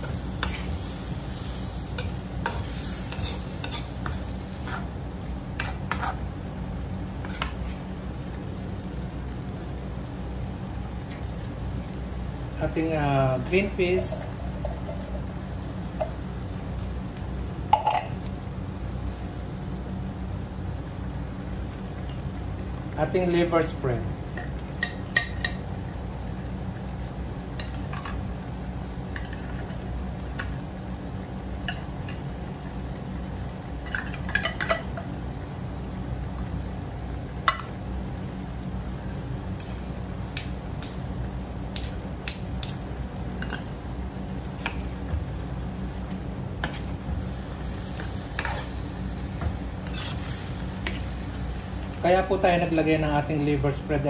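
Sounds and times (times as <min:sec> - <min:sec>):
metal ladle scraping a wok: 0:04.6 - 0:04.9, 0:05.6 - 0:06.2, 0:48.4 - 0:48.8, 0:49.8 - 0:51.0.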